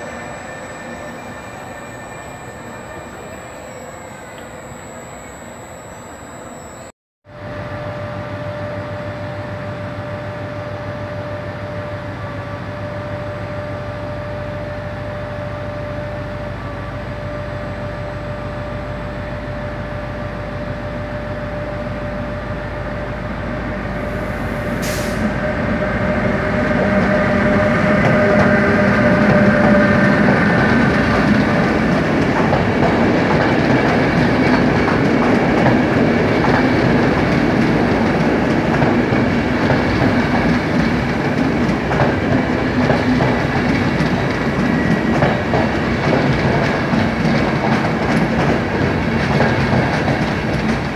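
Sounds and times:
steady whine: 0.0s - 10.7s
electric train passing: 0.0s - 50.9s.

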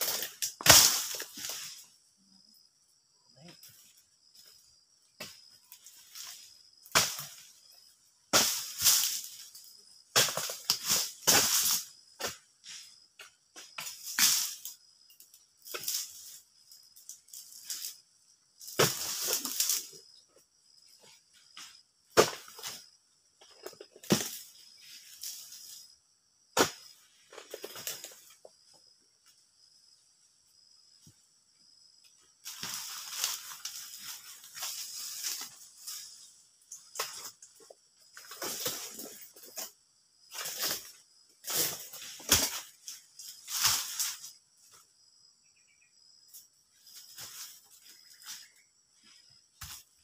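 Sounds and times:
palm fronds rustling and crashing: 0.0s - 1.9s, 8.3s - 11.9s, 18.6s - 20.0s, 32.4s - 44.4s, 46.8s - 48.5s
high insect buzz: 0.0s - 50.0s.

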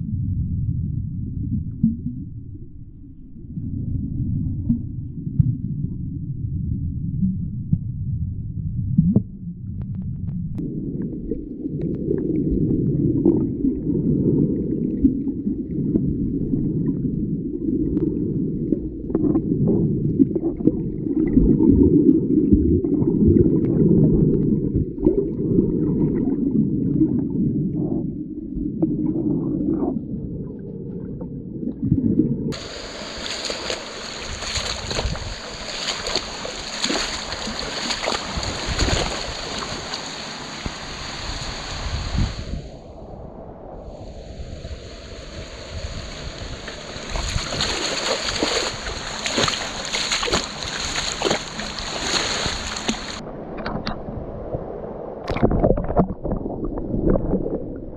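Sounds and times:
muffled underwater rumble: 0.0s - 57.9s
wind on microphone: 0.0s - 57.9s
surf: 32.5s - 56.4s.

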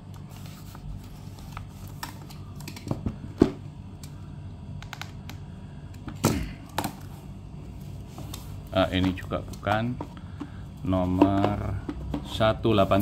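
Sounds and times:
low steady hum: 0.0s - 13.0s
box and packaging clicks and knocks: 11.2s - 12.4s.

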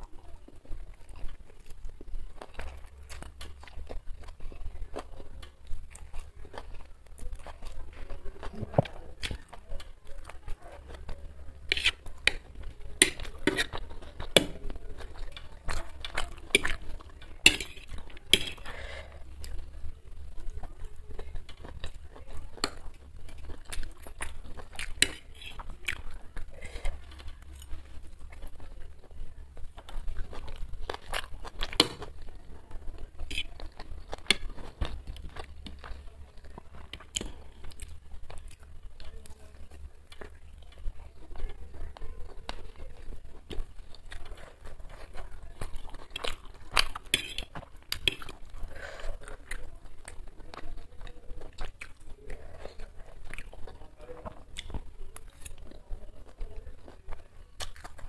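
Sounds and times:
chewing and mouth sounds: 0.0s - 58.0s
fork scraping ceramic plate: 11.6s - 12.4s, 13.0s - 13.8s, 47.2s - 47.6s.

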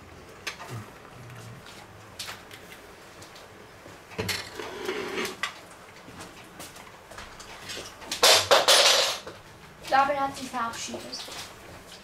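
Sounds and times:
scraping and rattling: 7.6s - 9.2s.

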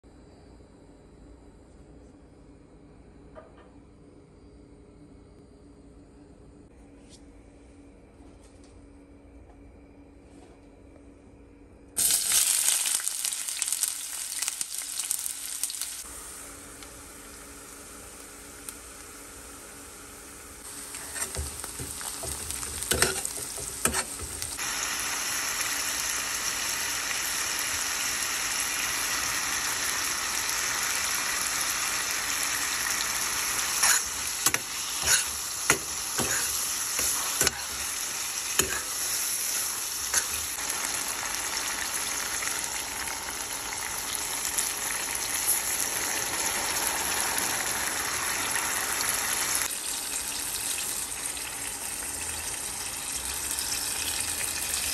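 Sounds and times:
vegetables sizzling in a pan: 12.0s - 54.9s.

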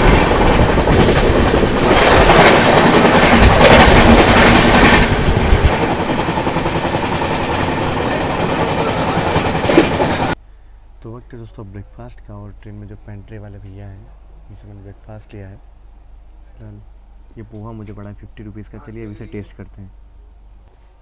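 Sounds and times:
passing train: 0.0s - 10.4s
rushing air: 0.0s - 10.4s
train wheels clattering: 0.0s - 10.4s.

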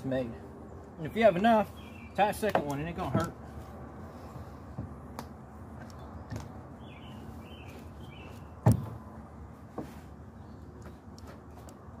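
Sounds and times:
bird chirping: 0.6s - 2.9s, 5.8s - 8.9s.

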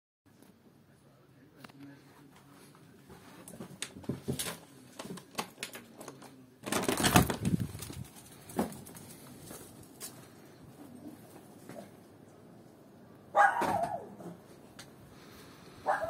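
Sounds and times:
handling noise: 3.2s - 10.4s.

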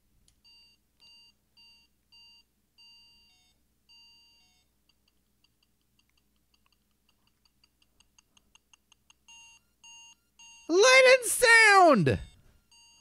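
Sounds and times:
faint electronic beeping: 0.4s - 4.7s.

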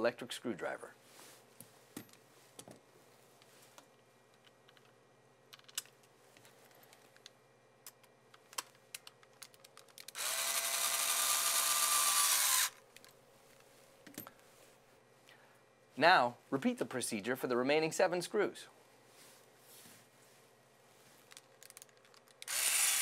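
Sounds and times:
clicks and taps of parts handled: 3.8s - 10.2s, 21.3s - 22.5s
electric screwdriver motor whine: 10.2s - 12.8s, 22.4s - 23.0s.

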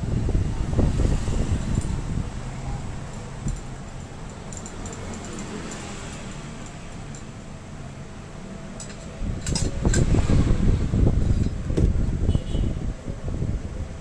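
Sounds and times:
light metal clicks: 3.0s - 7.4s.

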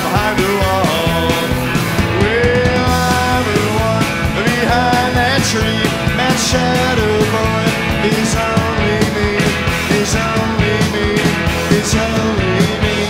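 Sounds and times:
loud rock song: 0.0s - 13.0s.

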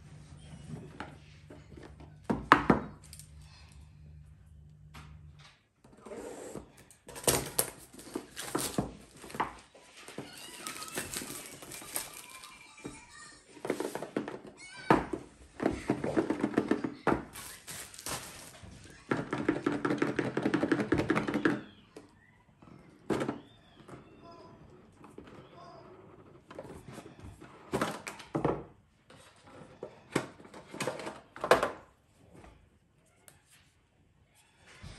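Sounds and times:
plastic packaging crinkling: 7.1s - 12.8s, 17.3s - 18.9s.

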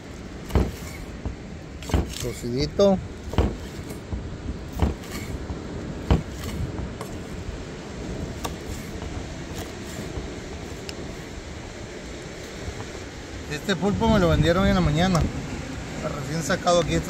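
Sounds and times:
steady background hiss: 0.0s - 17.0s
knife chopping on wooden board: 0.5s - 2.2s, 3.3s - 4.1s, 4.7s - 5.3s, 6.0s - 7.2s.

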